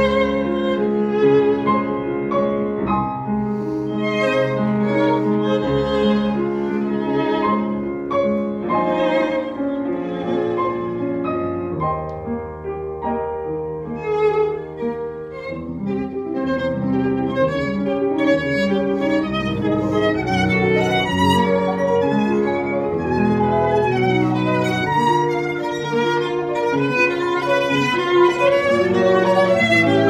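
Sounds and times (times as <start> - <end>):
piano chords: 0.0 - 30.0
violin long held notes: 13.9 - 30.0.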